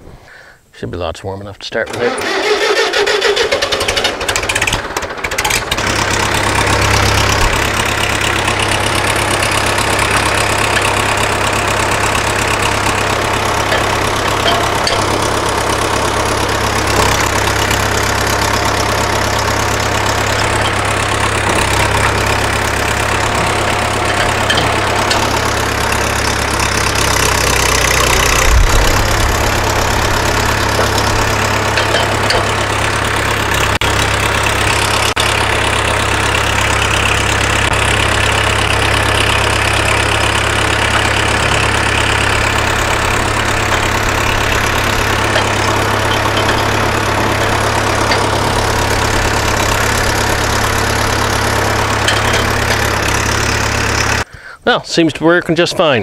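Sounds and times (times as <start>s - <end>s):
tractor engine idling: 1.8s - 56.0s.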